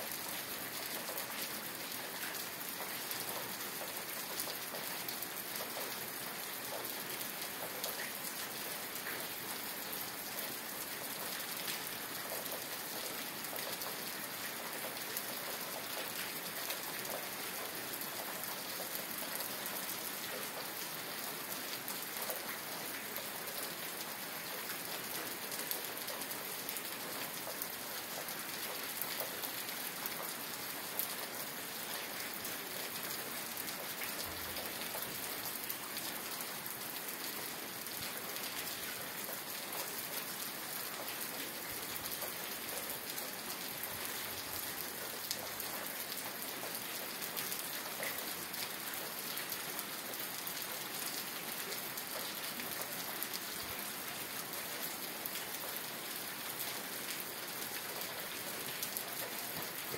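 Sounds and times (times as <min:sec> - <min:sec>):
steady rain falling: 0:00.0 - 0:59.9.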